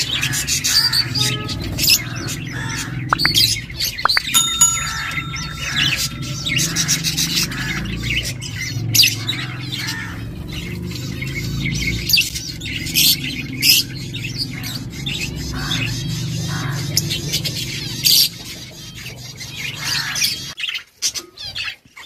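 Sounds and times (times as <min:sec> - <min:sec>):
birds chirping and squawking: 0:00.0 - 0:20.9.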